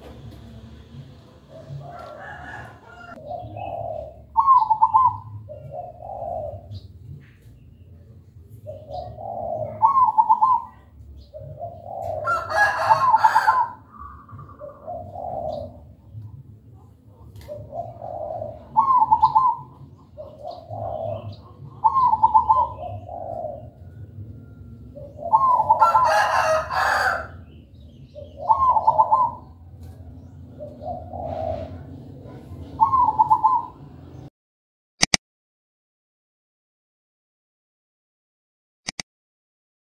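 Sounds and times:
dove cooing: 0.0 - 7.8, 8.4 - 34.3
harsh bird calls: 0.0 - 34.3
short click: 35.0 - 35.2.

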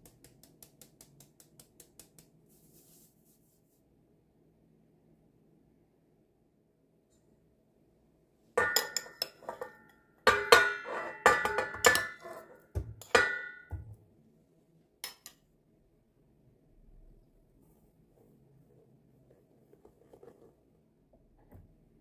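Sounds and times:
metal spoon clinking on dishes: 8.6 - 13.9, 15.0 - 15.4.

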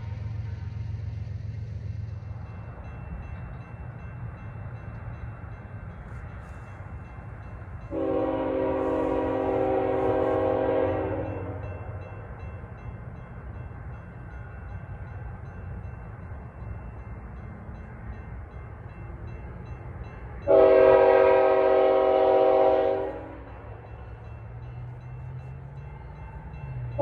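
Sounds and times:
train rumble: 0.0 - 27.0
locomotive horn blast: 7.9 - 11.7, 20.4 - 23.6.

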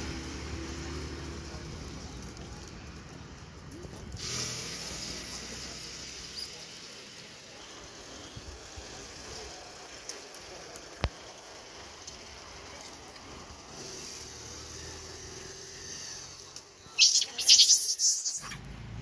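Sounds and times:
low traffic rumble: 0.0 - 19.0
steady hiss: 4.1 - 18.3.

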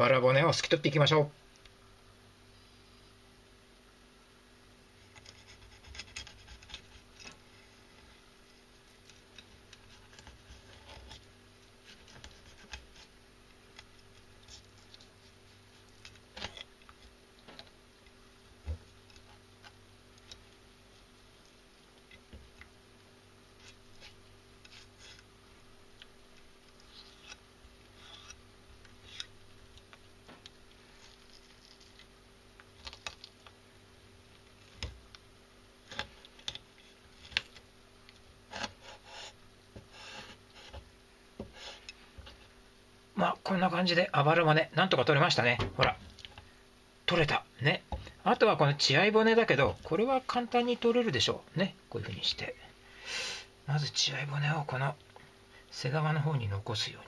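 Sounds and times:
knife scraping fish bones: 5.1 - 7.4, 26.7 - 28.4, 29.0 - 29.4.

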